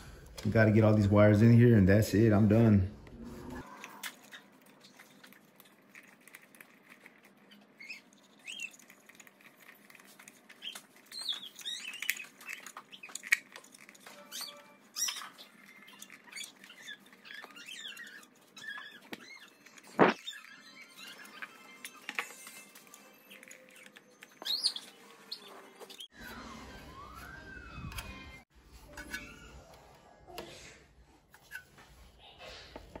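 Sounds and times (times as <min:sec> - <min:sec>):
wires and plastic connectors rustling: 0:03.8 - 0:26.1.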